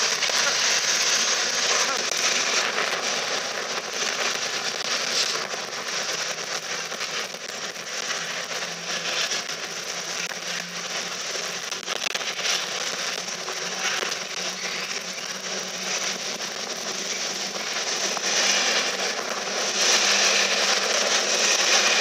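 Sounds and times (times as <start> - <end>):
train wheels rushing on rails: 8.2 - 22.0.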